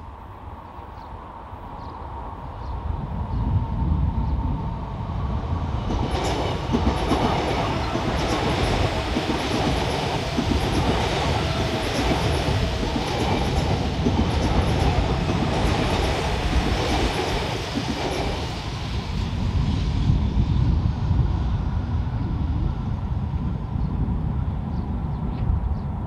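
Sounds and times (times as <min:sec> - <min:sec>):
electric train passing: 0:00.0 - 0:26.0
wheels clattering on rails: 0:05.9 - 0:19.0.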